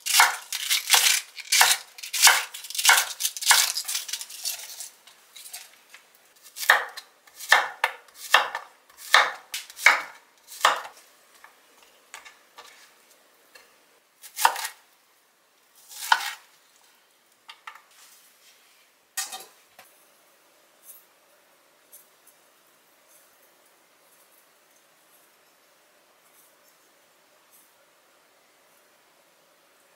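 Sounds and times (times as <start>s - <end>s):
knife chopping on wooden board: 6.6s - 10.9s.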